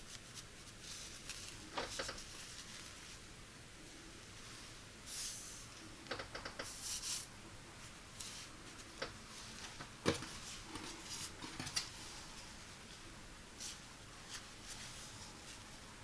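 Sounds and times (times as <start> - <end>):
fabric rustling and swishing: 13.6 - 15.8.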